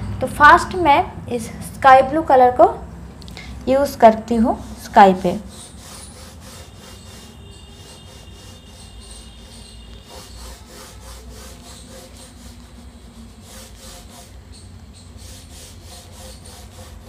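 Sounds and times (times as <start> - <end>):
oil pastel scraping on paper: 4.4 - 17.0.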